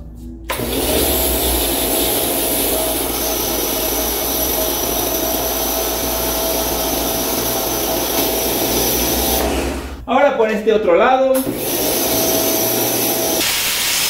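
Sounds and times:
pressure washer motor whining: 0.5s - 10.0s, 11.4s - 14.0s
water jet hissing: 5.1s - 10.0s, 11.6s - 14.0s.

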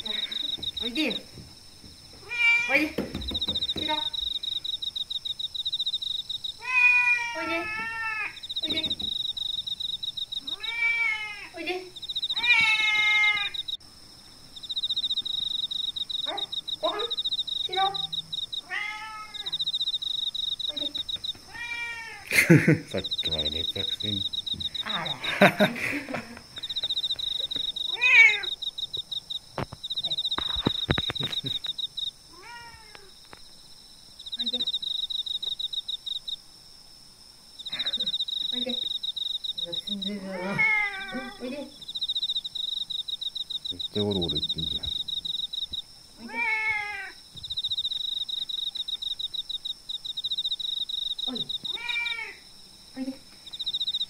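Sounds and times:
cat meowing: 2.2s - 2.9s, 6.6s - 8.8s, 10.4s - 11.6s, 12.3s - 13.6s, 17.7s - 19.6s, 21.5s - 22.3s, 27.9s - 28.6s, 32.3s - 33.1s, 40.2s - 41.5s, 46.2s - 47.2s, 51.7s - 52.4s
sharp knocks: 2.9s - 4.2s
high rapid chirping: 22.4s - 26.0s, 26.6s - 32.1s.

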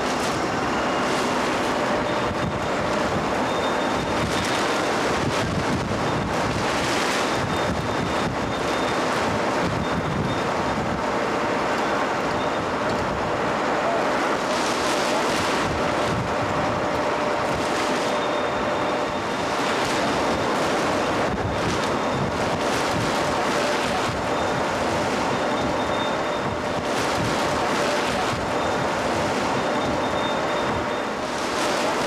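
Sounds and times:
wind buffeting microphone: 1.7s - 11.2s, 15.3s - 18.0s, 18.6s - 30.9s.

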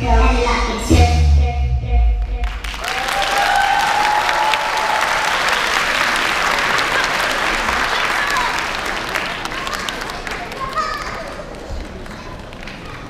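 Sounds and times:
audience applause: 2.5s - 13.0s
long cheer: 2.6s - 13.0s.

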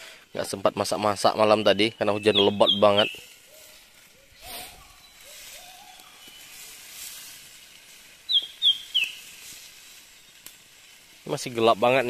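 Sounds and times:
faint forest background noise: 0.0s - 12.0s
bird chirping: 1.6s - 6.9s, 8.2s - 10.5s.

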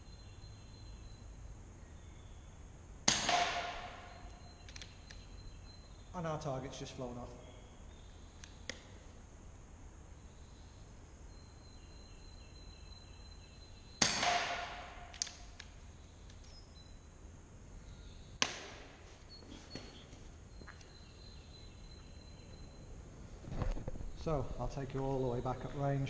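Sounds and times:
air rifle shots: 3.0s - 4.3s, 14.0s - 15.5s.

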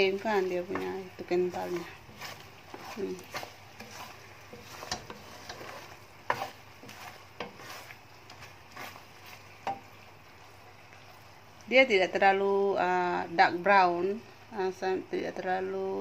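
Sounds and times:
wooden spatula scraping a pan: 0.0s - 11.2s.

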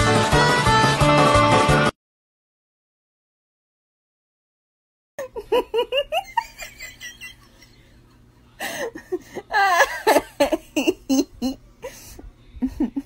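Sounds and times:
person laughing: 5.2s - 13.0s.

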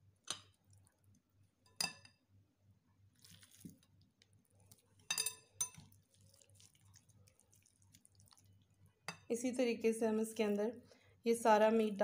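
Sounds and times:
soft wet squelch: 3.1s - 5.1s, 5.7s - 9.0s
utensil clinking against glass bowl: 5.0s - 6.0s.

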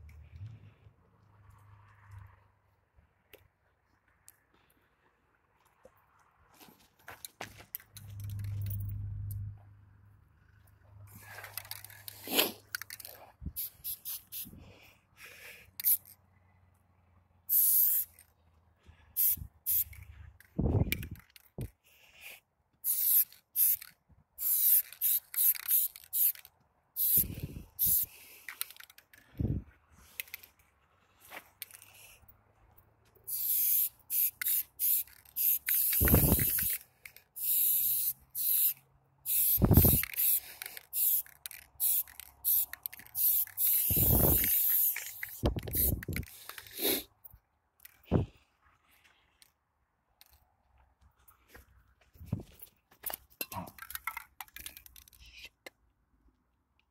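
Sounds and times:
spray paint can hissing: 11.2s - 14.6s, 15.8s - 16.1s, 17.5s - 18.2s, 19.2s - 20.1s, 22.8s - 28.9s, 33.3s - 47.1s.

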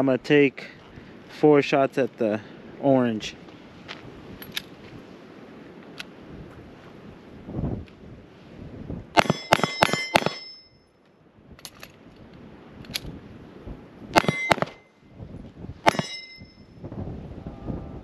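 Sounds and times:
handgun shots: 9.2s - 10.5s, 14.2s - 14.8s, 15.9s - 16.2s
magazine change clicks: 11.6s - 12.0s, 12.8s - 13.1s.

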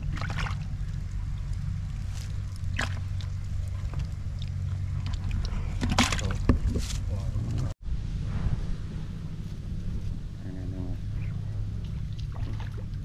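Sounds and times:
low wind rumble on microphone: 0.0s - 13.0s
fish rustling and knocking in bucket: 2.0s - 7.2s.

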